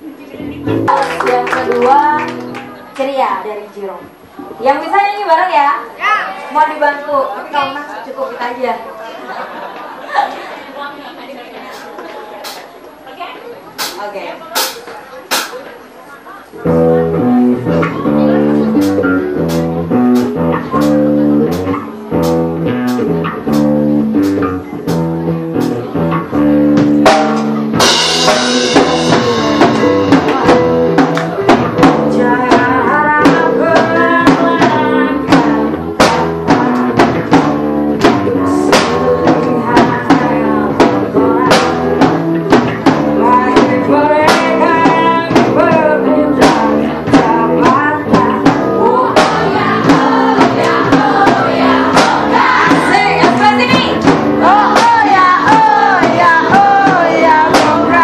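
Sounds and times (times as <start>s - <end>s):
electric guitar: 0.0s - 3.0s, 16.6s - 58.0s
drum kit beat: 0.4s - 3.0s, 11.7s - 12.7s, 13.7s - 15.6s, 16.6s - 58.0s
woman singing into a microphone: 31.8s - 37.1s, 38.4s - 41.8s, 43.1s - 58.0s.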